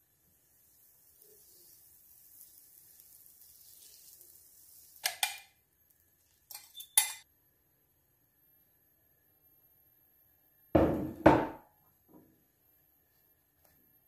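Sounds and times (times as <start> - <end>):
butter sizzling in frying pan: 0.0 - 7.1
egg hitting hot pan: 4.9 - 5.6.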